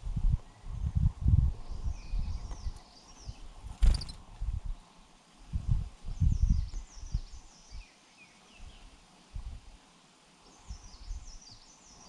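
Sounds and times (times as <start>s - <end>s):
finches chirping: 1.7s - 4.2s.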